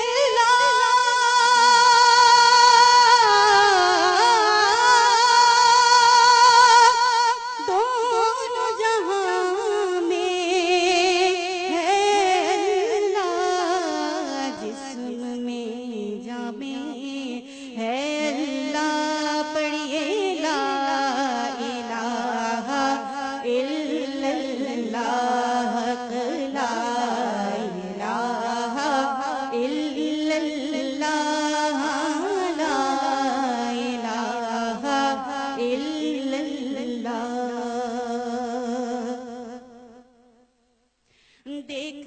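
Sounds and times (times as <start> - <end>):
woman singing a devotional hymn: 0.0 - 40.0, 41.4 - 42.0.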